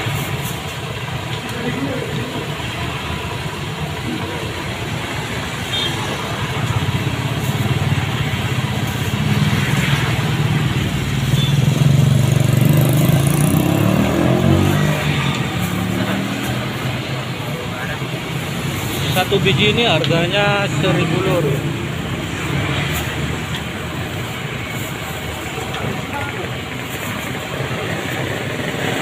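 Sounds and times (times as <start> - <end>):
vehicle engine running: 6.5 - 29.0.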